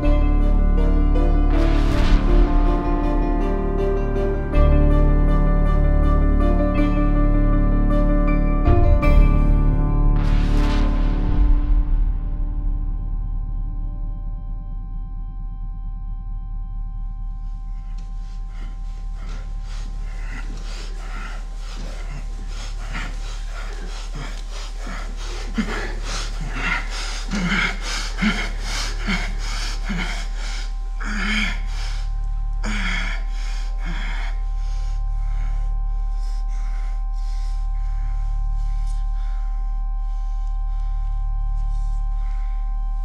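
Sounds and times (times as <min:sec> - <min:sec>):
low musical drone: 0:00.0 - 0:43.0
woman breathing heavily and gasping: 0:17.8 - 0:43.0.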